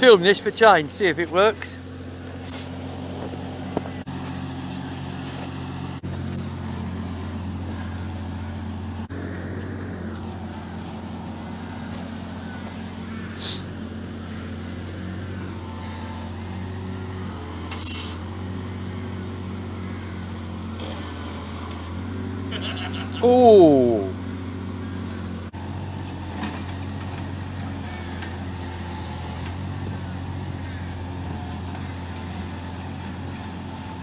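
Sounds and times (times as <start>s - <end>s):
digger engine humming: 0.0s - 34.0s
short hisses: 2.4s - 2.8s, 13.4s - 13.7s.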